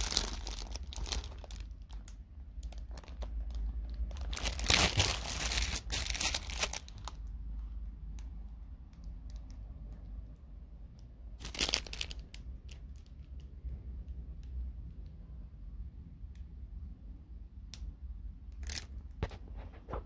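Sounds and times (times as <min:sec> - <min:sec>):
plastic packaging crinkling: 0:00.0 - 0:07.3, 0:11.4 - 0:13.2.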